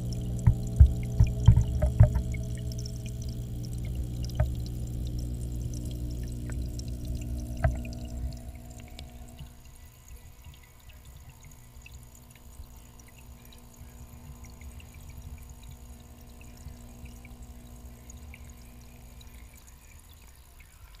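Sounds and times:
muffled underwater rumble: 0.0 - 9.7, 10.5 - 19.8
bubbles ticking: 0.0 - 21.0
faint hum: 0.0 - 21.0.

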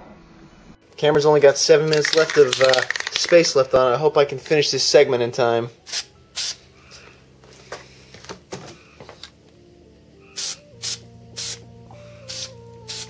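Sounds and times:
quiet electronic music: 0.0 - 13.0
spray paint can hissing: 1.9 - 3.5, 5.8 - 6.6, 10.4 - 11.6, 12.2 - 13.0.

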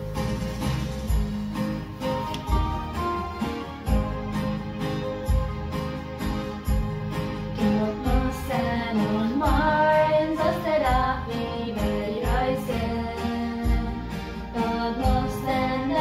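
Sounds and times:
instrumental backing with steady beat: 0.0 - 16.0
person singing: 7.5 - 16.0.

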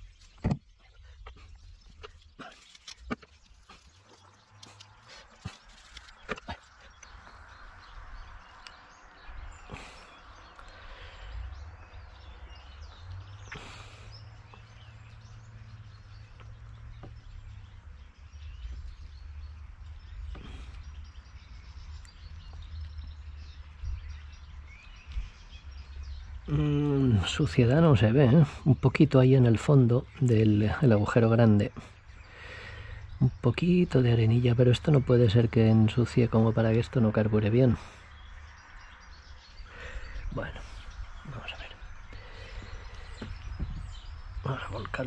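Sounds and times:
faint birdsong: 0.0 - 45.0.

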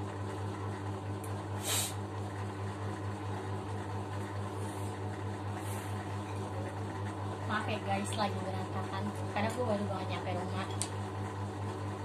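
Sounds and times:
low room hum: 0.0 - 12.0
short hiss: 1.6 - 2.0.

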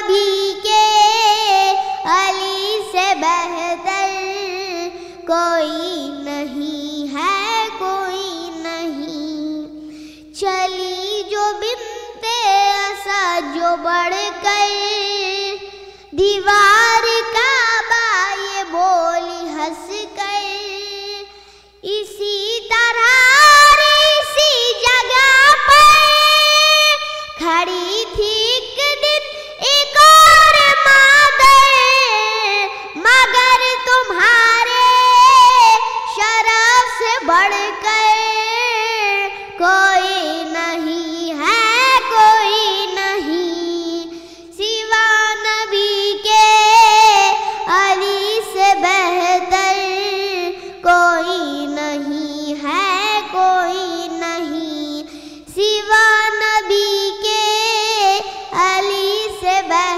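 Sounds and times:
boy singing: 0.0 - 59.9.

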